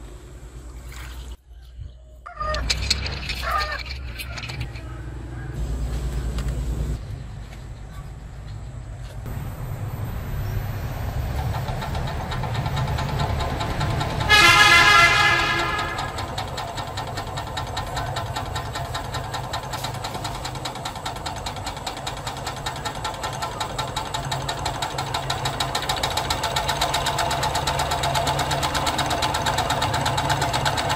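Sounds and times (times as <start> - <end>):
steam engine chuffing: 9.3 - 30.9
loud pitched toot: 14.3 - 16.2.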